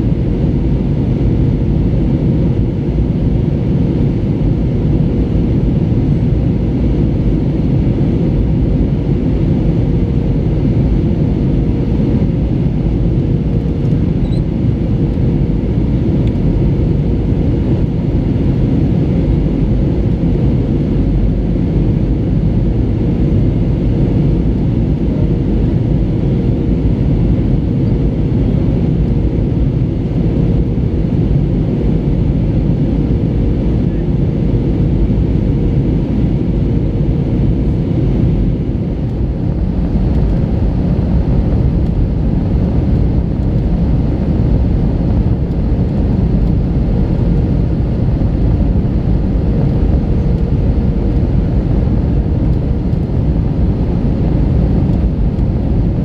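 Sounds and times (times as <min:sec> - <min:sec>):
airplane cabin engine rumble: 0:00.0 - 0:56.0
steady hum: 0:00.0 - 0:56.0.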